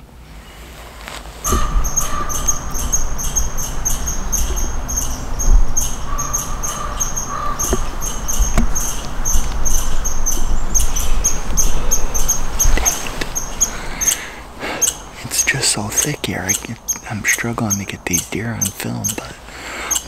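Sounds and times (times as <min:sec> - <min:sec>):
sharp knocks: 0:01.5 - 0:04.8
low rumble: 0:01.5 - 0:15.2
rapid high-pitched animal chirping: 0:01.5 - 0:19.3.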